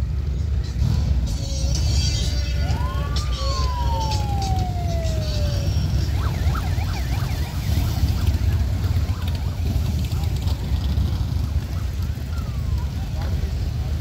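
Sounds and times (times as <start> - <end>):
warbling siren: 2.4 - 10.5, 11.6 - 13.4
motorcycles rumbling past: 4.5 - 14.0.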